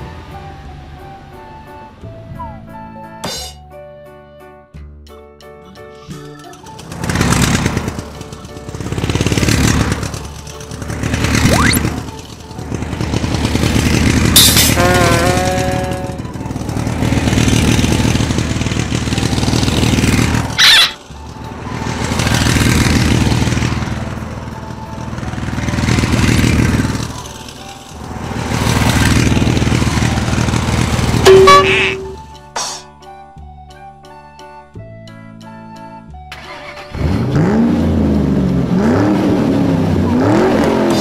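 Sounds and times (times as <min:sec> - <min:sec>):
toy motorcycle engine sound effect: 0:11.4 - 0:12.1, 0:20.6 - 0:21.0, 0:31.2 - 0:32.2
short electronic tones: 0:11.5 - 0:11.8, 0:31.3 - 0:32.2.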